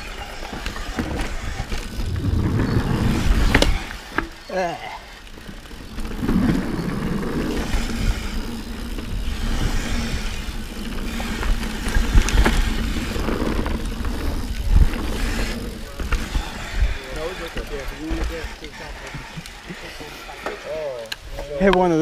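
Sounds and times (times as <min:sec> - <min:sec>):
bike tyre rumble and rattle: 0:00.0 - 0:22.0
wind buffeting microphone: 0:01.2 - 0:04.1, 0:05.9 - 0:18.6.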